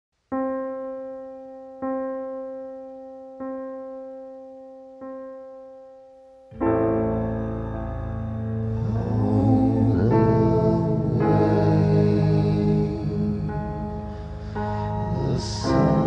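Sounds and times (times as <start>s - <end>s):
piano chord with deep bass: 6.5s - 16.0s.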